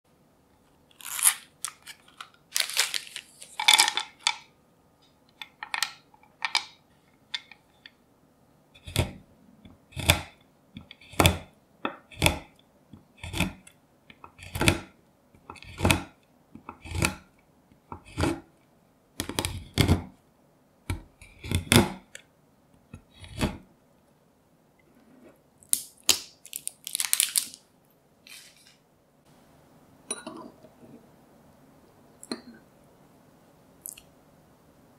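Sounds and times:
packaging rustling and crinkling: 0.9s - 4.3s, 25.8s - 28.8s.

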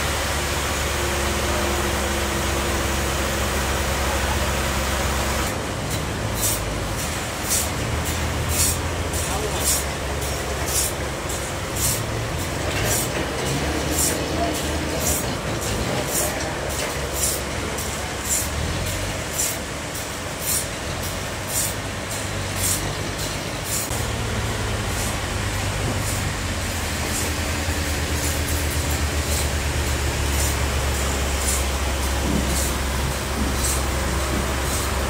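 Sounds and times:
short high hiss: 21.5s - 24.0s, 30.3s - 35.0s.

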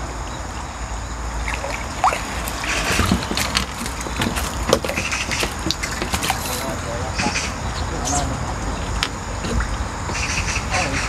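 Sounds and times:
fish splashing at surface: 1.4s - 6.8s.

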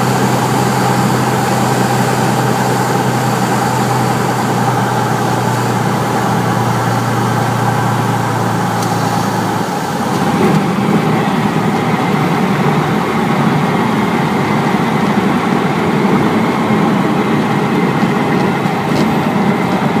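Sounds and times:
aircraft engine running: 0.0s - 20.0s.

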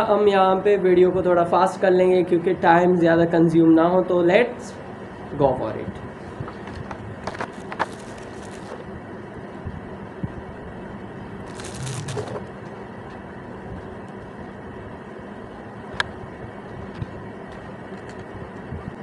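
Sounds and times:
background hiss and hum: 0.0s - 19.0s
plastic rustling scrape: 7.3s - 8.8s, 11.5s - 12.4s.

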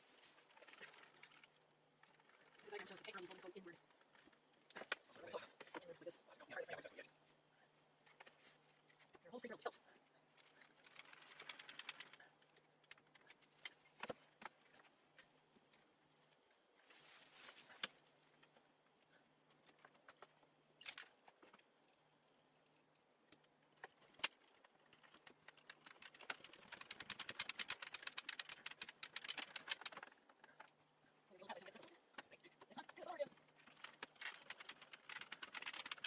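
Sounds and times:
screwdriver rapid clicking: 34.0s - 36.0s.

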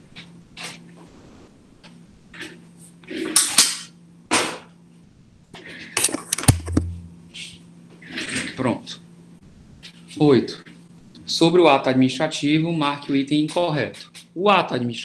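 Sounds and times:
short low hum: 6.0s - 7.5s.

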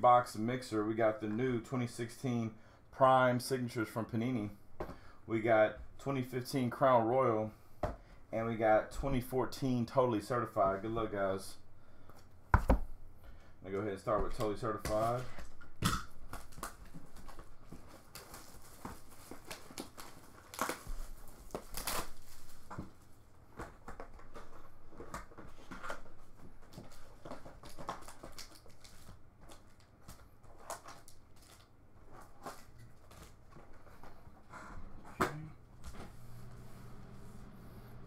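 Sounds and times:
foil packs crinkling: 14.4s - 33.9s
shrink wrap tearing: 16.3s - 22.8s.

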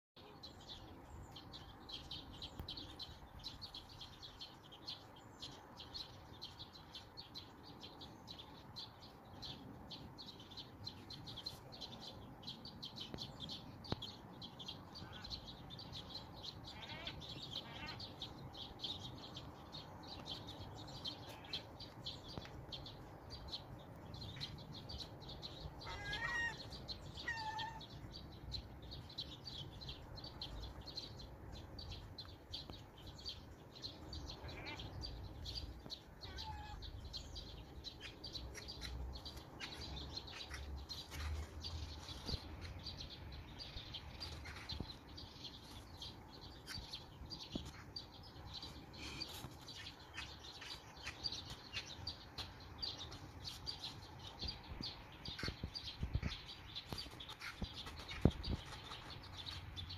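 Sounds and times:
high-pitched bird chirps: 24.2s - 31.1s, 34.3s - 42.8s
gull calls: 25.8s - 26.6s.

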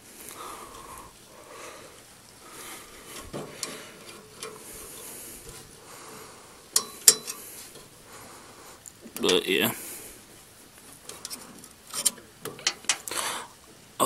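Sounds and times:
faint metallic clicks and scrapes: 2.2s - 8.0s, 10.2s - 13.2s.

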